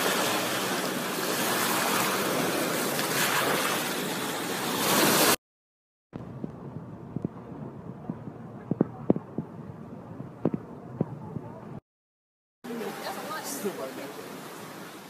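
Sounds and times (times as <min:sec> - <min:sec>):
surf washing onto beach: 0:00.0 - 0:05.4.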